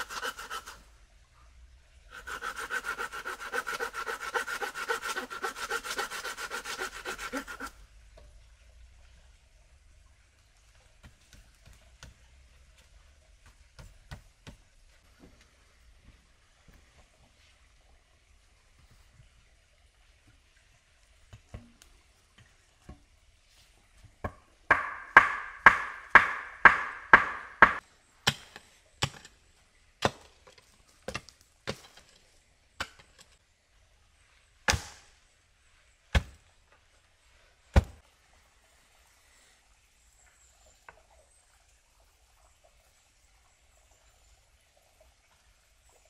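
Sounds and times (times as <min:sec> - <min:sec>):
wood being chopped: 0:24.2 - 0:29.2, 0:30.0 - 0:30.3, 0:34.7 - 0:35.0, 0:36.1 - 0:36.4, 0:37.8 - 0:38.0.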